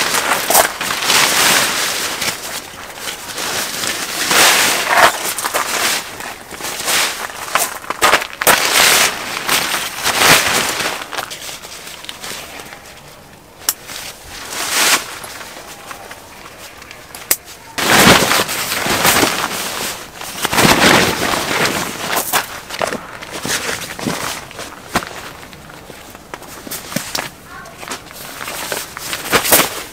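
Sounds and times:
fabric rustling and swishing: 0.0 - 12.5, 13.8 - 16.8, 17.8 - 29.9
plastic tarp crinkling: 0.0 - 12.9, 13.8 - 17.1, 17.7 - 29.9
gravel crunching: 0.0 - 29.9.

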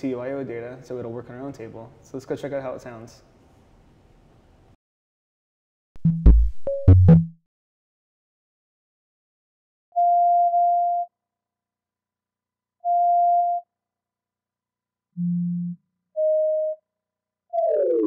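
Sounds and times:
electronic synthesizer tones: 17.5 - 18.0
tone sliding down in pitch: 17.5 - 18.0.

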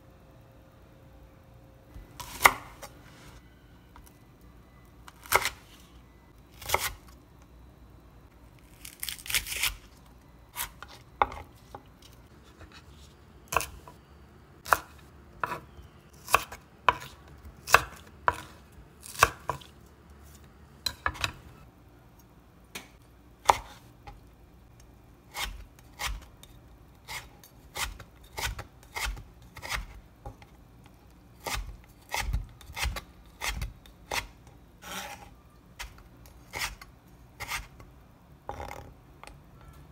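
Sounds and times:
knife chopping on wooden board: 14.7 - 15.6, 16.2 - 19.7
knife scraping board: 31.4 - 35.9, 36.5 - 36.8, 37.4 - 37.7.

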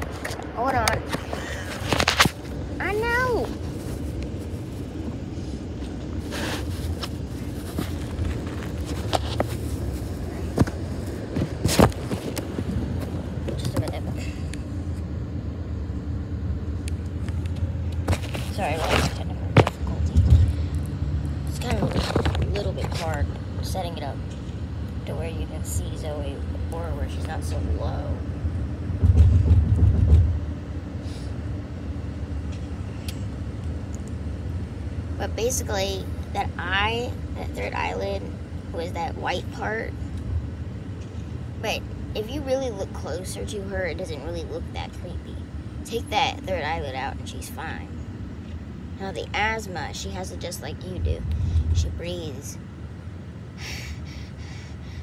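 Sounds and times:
car cabin rumble: 0.0 - 15.0, 15.6 - 30.6.

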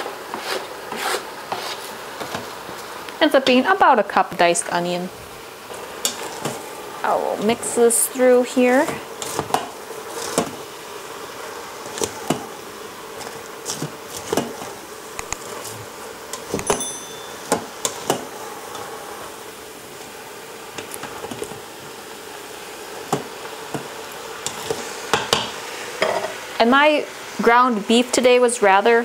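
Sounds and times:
spatula scraping a pot: 0.0 - 2.4
meat and vegetables sizzling: 0.0 - 29.0.

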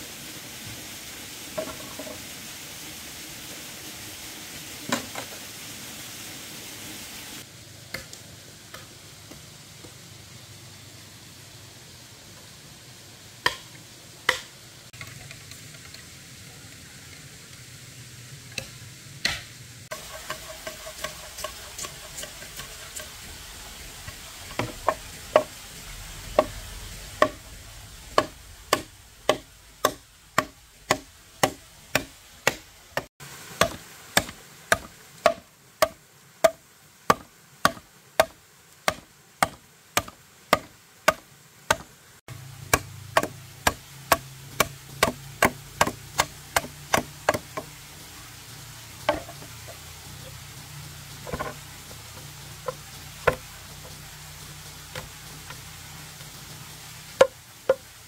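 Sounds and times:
faint sizzle: 8.7 - 32.5
knife chopping on a board: 28.2 - 41.9, 42.8 - 47.6.

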